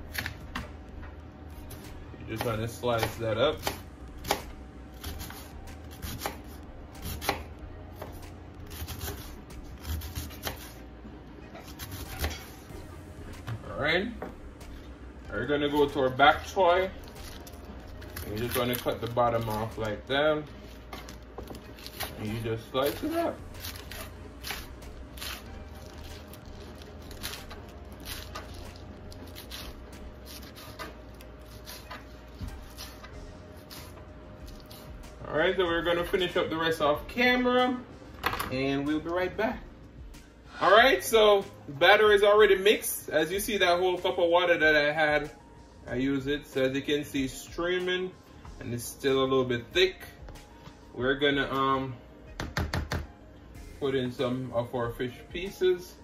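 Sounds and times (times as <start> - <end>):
knife slicing cabbage on board: 2.4 - 10.8, 11.6 - 12.6, 29.3 - 35.0.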